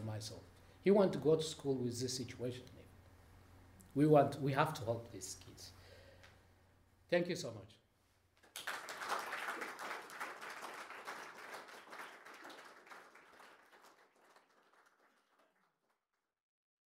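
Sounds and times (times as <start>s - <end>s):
audience applauding: 8.4s - 15.8s.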